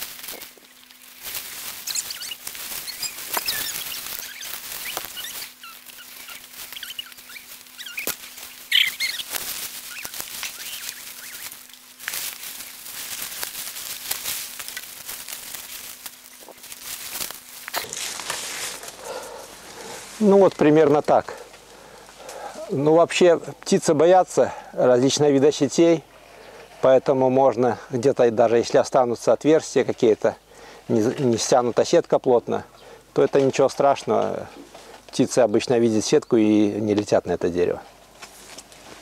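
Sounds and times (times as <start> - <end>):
leaves and netting rustling: 0.0 - 39.0
short bird chirps: 1.8 - 8.1, 8.7 - 9.3.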